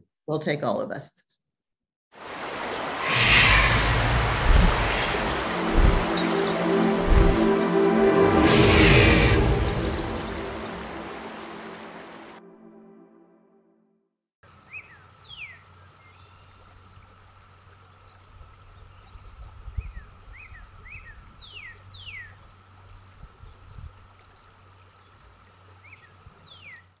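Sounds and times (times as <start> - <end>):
birds chirping and whistling: 3.1 - 11.1
steady low rumble: 7.0 - 7.5.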